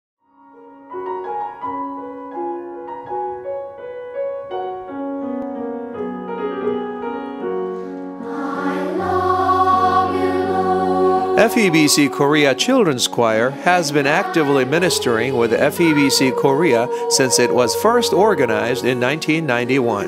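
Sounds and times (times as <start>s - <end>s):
choir singing: 8.2s - 20.0s.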